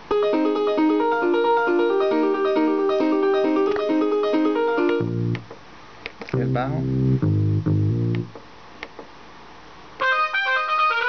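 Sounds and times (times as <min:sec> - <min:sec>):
piano rhythmic chords: 0:00.0 - 0:05.6, 0:06.4 - 0:08.4
low piano note: 0:06.4 - 0:08.3.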